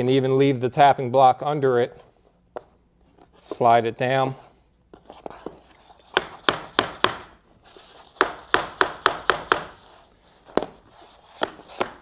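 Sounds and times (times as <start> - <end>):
hammer tapping block on vinyl plank: 6.2 - 7.3, 8.2 - 9.7.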